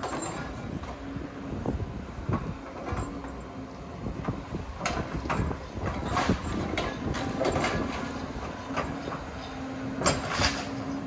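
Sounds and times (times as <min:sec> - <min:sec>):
demolition machinery running: 0:00.0 - 0:11.0.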